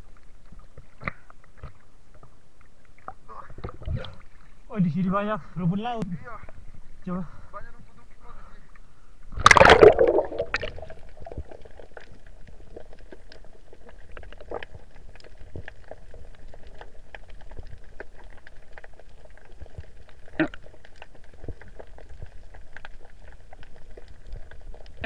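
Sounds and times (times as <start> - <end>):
faint underwater clicks and crackles: 0.0 - 25.0
water splash: 9.4 - 11.4.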